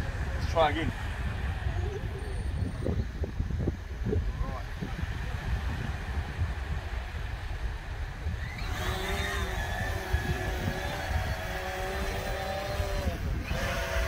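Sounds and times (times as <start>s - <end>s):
wind rumble on microphone: 0.0s - 14.0s
drone motors whining: 8.2s - 14.0s.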